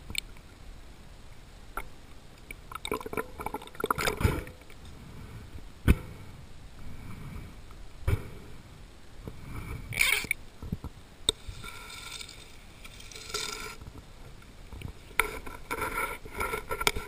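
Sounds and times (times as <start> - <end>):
water swishing against mask: 11.4 - 14.0.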